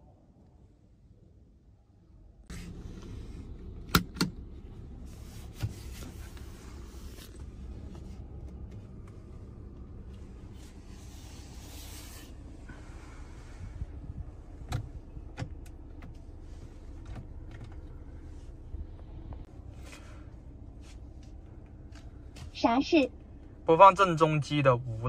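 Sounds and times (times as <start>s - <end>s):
sharp clicks in car cabin: 3.8s - 4.4s, 14.6s - 16.3s.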